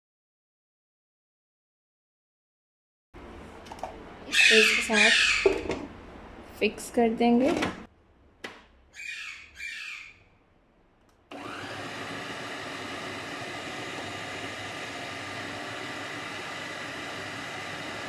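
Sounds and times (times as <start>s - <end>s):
food processor motor whining: 11.3s - 18.0s.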